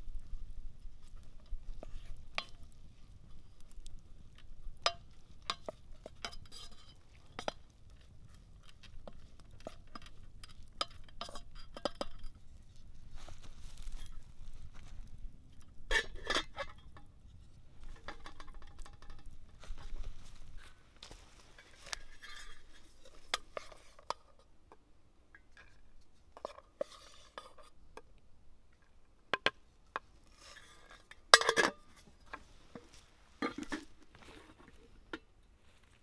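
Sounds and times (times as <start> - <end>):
spoon scraping metal pot: 5.0 - 7.7, 21.6 - 24.3, 26.4 - 27.8
metal lid clattering on pot: 15.9 - 17.0, 31.4 - 31.9.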